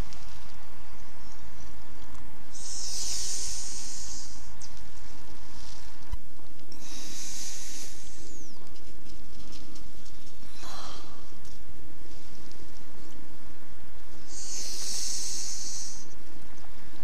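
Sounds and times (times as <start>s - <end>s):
low rumble: 0.0s - 17.0s
person breathing: 2.6s - 4.5s, 6.7s - 8.6s, 10.4s - 11.4s, 14.2s - 16.1s.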